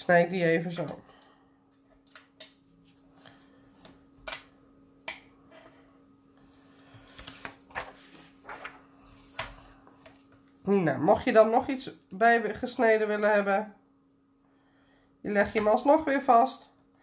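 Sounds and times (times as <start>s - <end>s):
faint steady hum: 0.0s - 17.0s
paper being handled: 7.0s - 10.4s.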